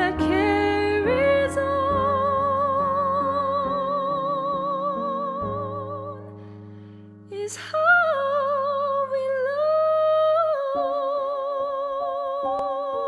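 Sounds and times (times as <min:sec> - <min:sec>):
woman singing with vibrato: 0:00.0 - 0:06.3, 0:07.3 - 0:13.0
woman breathing in: 0:06.3 - 0:07.3.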